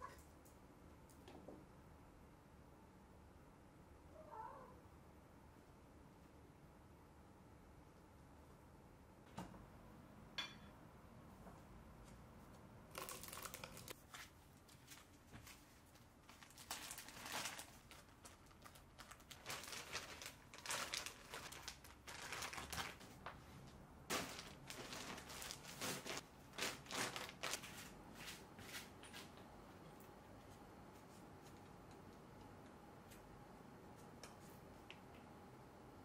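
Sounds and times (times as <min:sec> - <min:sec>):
plastic or paper crinkling: 0:12.9 - 0:14.1, 0:14.8 - 0:23.4, 0:24.1 - 0:27.9.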